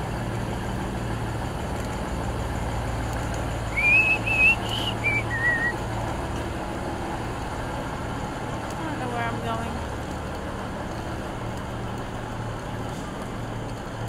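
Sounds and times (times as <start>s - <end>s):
diesel railcar idling: 0.0s - 14.0s
warbling whistle notes: 3.7s - 5.8s.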